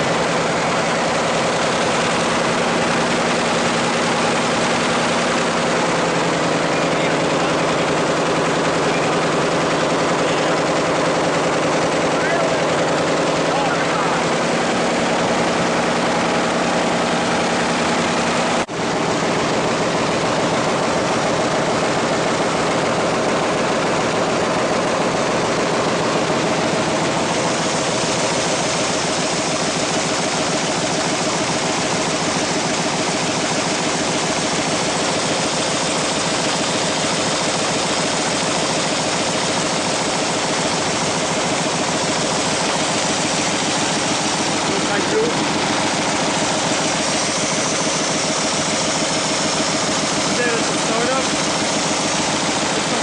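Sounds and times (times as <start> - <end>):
envelope folding machine running: 0.0 - 53.0.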